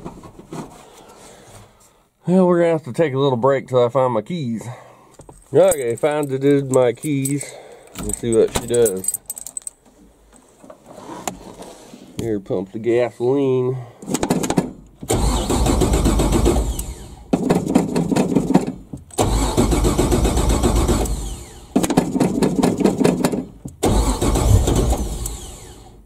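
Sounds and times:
starter motor cranking: 0:15.0 - 0:17.2, 0:19.1 - 0:21.8, 0:23.8 - 0:26.0
engine firing: 0:15.1 - 0:17.3, 0:19.2 - 0:21.8, 0:23.8 - 0:26.0.

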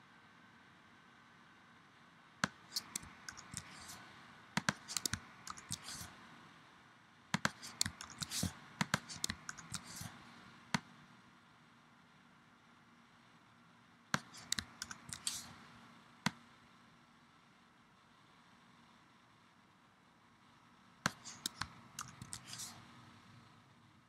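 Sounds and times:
computer mouse and keyboard clicks: 0:02.4 - 0:04.0, 0:04.6 - 0:06.1, 0:07.4 - 0:10.1, 0:14.2 - 0:15.5, 0:21.1 - 0:22.8.

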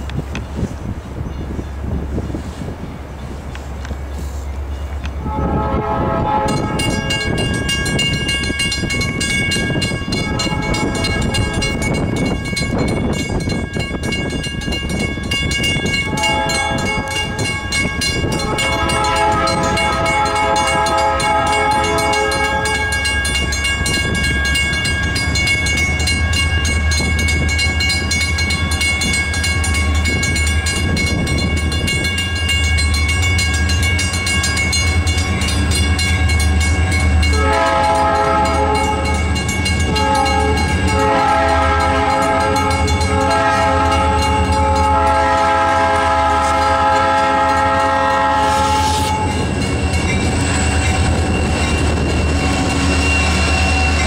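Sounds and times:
wind on microphone: 0:00.0 - 0:54.0
locomotive air horn blasts: 0:05.2 - 0:07.4, 0:10.1 - 0:12.0, 0:16.0 - 0:23.4, 0:37.2 - 0:49.6
fast ringing bell: 0:06.6 - 0:41.1, 0:41.8 - 0:45.2, 0:49.2 - 0:54.0.

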